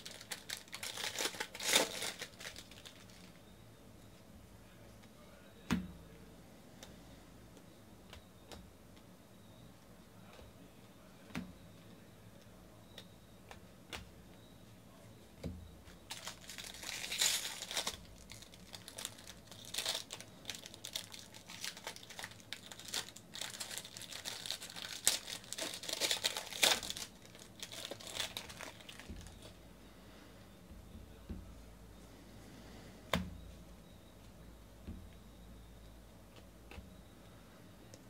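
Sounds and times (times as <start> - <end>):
foil wrapper crinkling and tearing: 0.0 - 3.4, 16.1 - 29.6.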